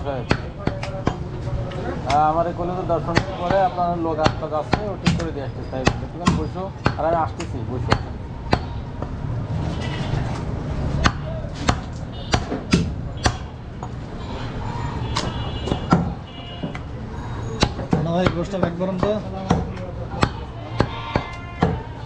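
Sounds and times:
knife chopping on wooden block: 4.2s - 8.7s.

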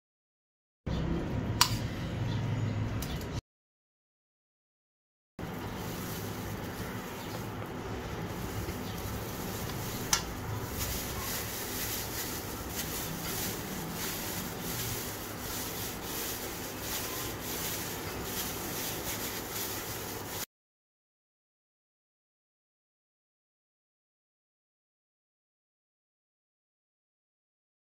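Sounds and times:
plastic gloves crinkling: 5.4s - 20.5s.

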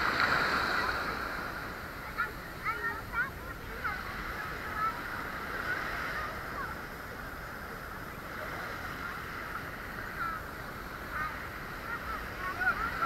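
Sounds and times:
light breeze: 0.0s - 13.0s
shallow water sloshing: 0.0s - 13.0s.

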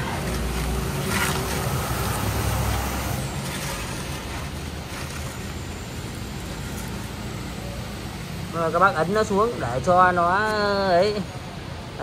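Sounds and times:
cardboard rustling and scraping: 0.0s - 5.8s.

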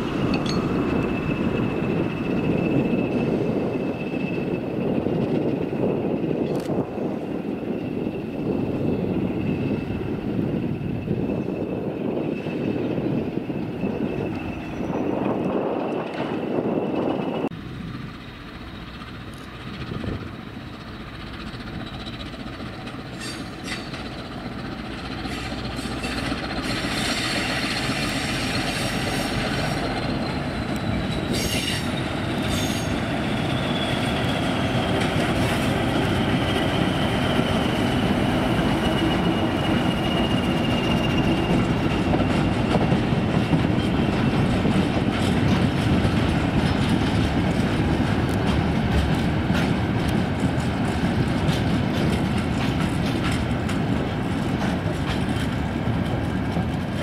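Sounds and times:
high wheel squeal: 0.0s - 6.4s, 7.0s - 45.8s
diesel locomotive rumbling: 0.0s - 57.0s.

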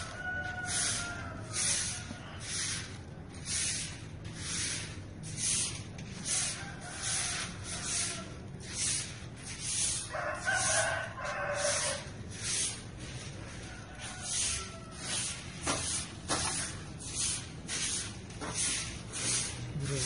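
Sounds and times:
rooster crowing: 0.0s - 2.4s, 6.4s - 8.5s, 9.9s - 12.2s, 13.5s - 15.4s
grass broom sweeping ash: 0.0s - 20.0s.

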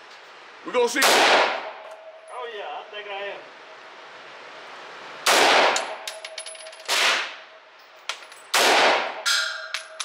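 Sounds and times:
rifle shots echoing: 1.0s - 1.8s, 5.3s - 6.2s, 6.9s - 7.5s, 8.5s - 9.6s
light metallic clinks: 9.3s - 10.0s.

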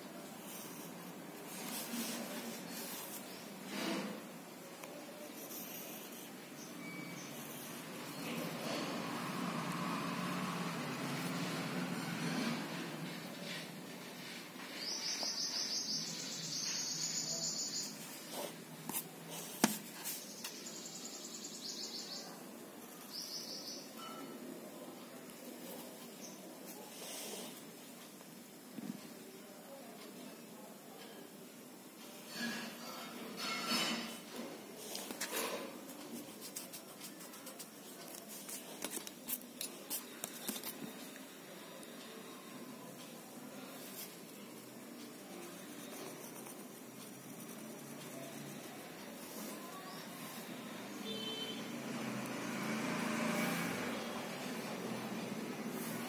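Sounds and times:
pencil scratching on paper: 0.4s - 4.2s, 5.2s - 6.5s, 7.2s - 9.3s, 18.0s - 20.6s, 34.0s - 41.0s, 45.1s - 51.3s.

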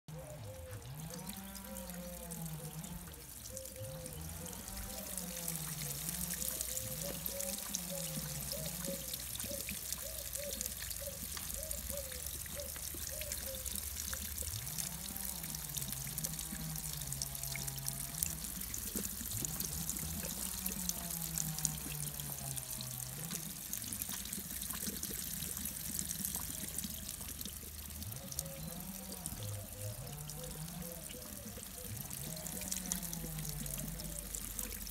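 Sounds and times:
water trickling from tap: 0.4s - 34.9s.

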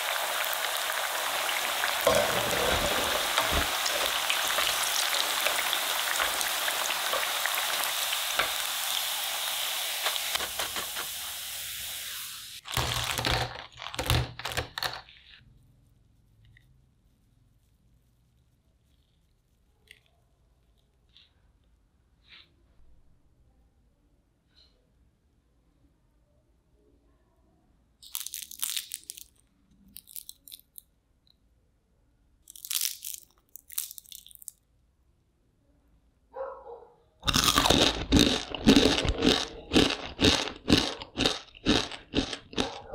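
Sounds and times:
crispy fried food crunching: 0.0s - 10.4s, 12.6s - 14.1s, 28.0s - 30.8s, 32.5s - 34.6s, 37.2s - 42.9s
potatoes sizzling in hot oil: 0.0s - 13.3s.

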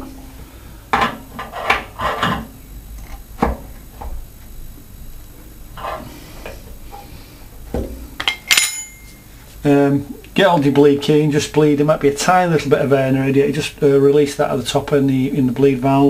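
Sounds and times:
ringing metal clink: 8.3s - 9.2s.

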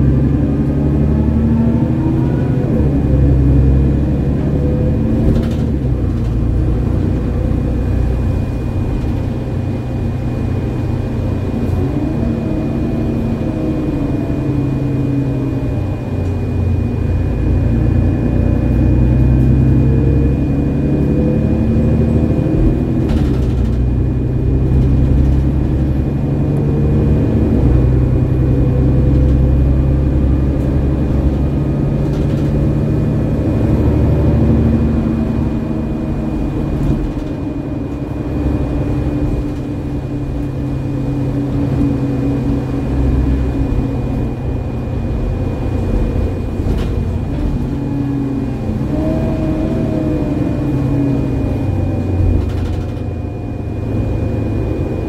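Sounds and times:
bus diesel engine running: 0.0s - 55.0s.

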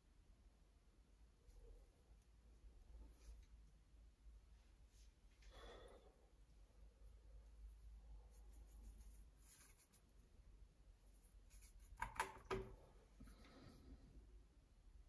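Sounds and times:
paintbrush rubbing on paper: 7.0s - 10.3s, 11.0s - 12.0s
brush clicking in plastic palette: 11.8s - 12.7s.

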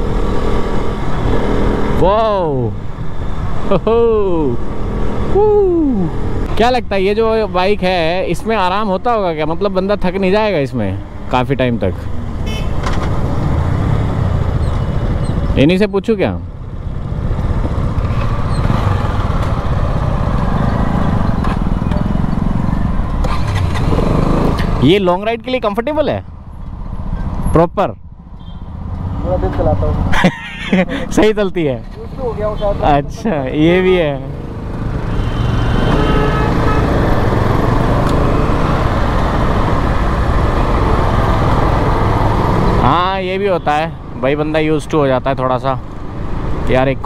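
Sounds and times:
road and wind noise: 0.0s - 47.0s
surrounding traffic: 0.0s - 47.0s
motorcycle engine rumbling: 11.0s - 25.6s.

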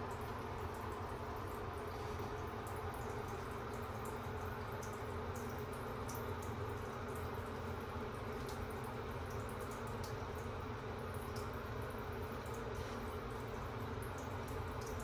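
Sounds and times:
shower water running over fur: 0.0s - 15.0s
water drips and splashes: 0.0s - 15.0s.

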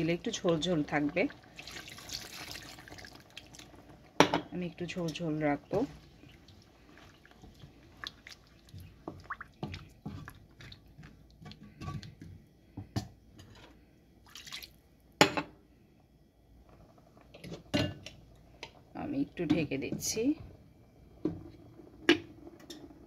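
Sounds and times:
spatula stirring gravy in a pan: 5.1s - 12.3s.

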